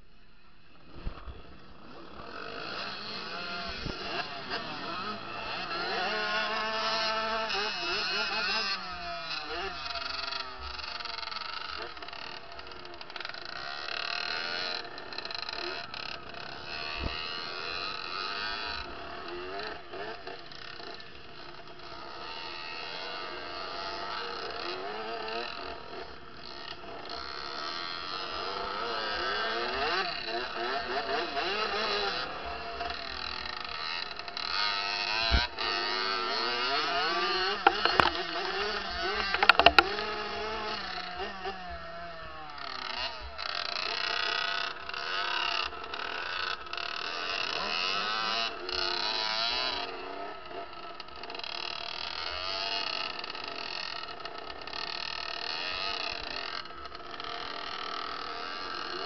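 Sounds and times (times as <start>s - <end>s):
other dirt bikes: 0.0s - 59.0s
dirt bike engine revving: 0.6s - 59.0s
sharp knocks: 37.6s - 38.1s, 39.2s - 39.8s.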